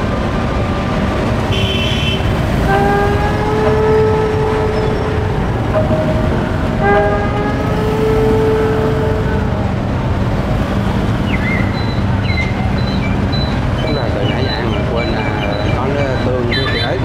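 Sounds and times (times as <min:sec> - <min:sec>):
low engine hum: 0:00.0 - 0:17.0
motorbike traffic rumble: 0:00.0 - 0:17.0
long horn-like tone: 0:01.5 - 0:11.2.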